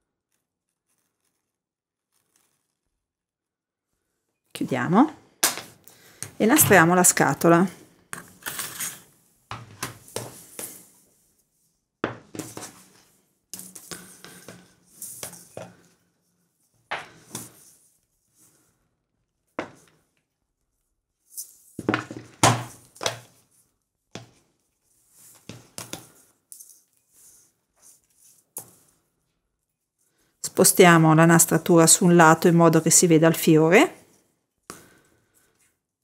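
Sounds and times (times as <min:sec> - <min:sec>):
ribbon rustling: 0:00.3 - 0:03.0.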